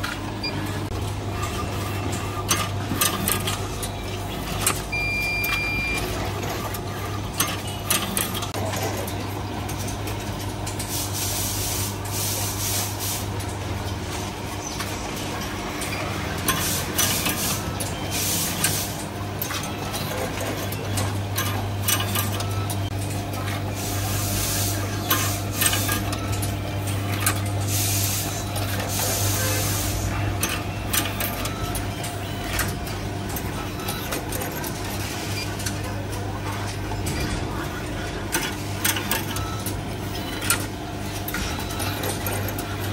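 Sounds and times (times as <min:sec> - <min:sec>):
machine parts clicking and knocking: 0:00.0 - 0:10.9, 0:14.8 - 0:23.4, 0:25.0 - 0:42.9
high beep: 0:04.9 - 0:06.0.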